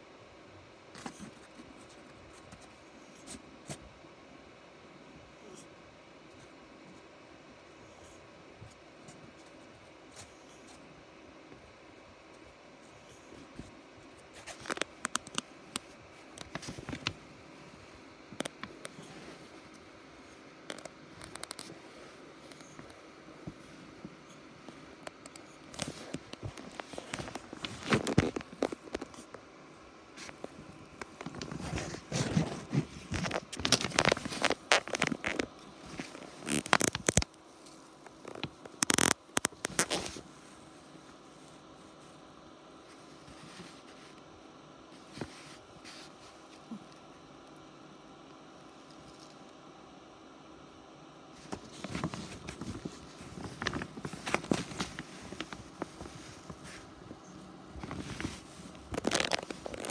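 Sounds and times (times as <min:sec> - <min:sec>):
fabric rustling: 0:13.3 - 0:29.4, 0:30.1 - 0:40.7, 0:51.4 - 0:59.9
hand rubbing cat fur: 0:18.7 - 0:20.4, 0:44.9 - 0:46.8, 0:51.4 - 0:59.9.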